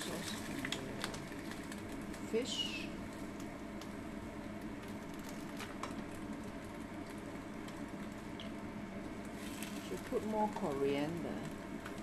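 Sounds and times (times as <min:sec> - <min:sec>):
sauce simmering and bubbling: 0:00.3 - 0:02.3, 0:02.9 - 0:10.6.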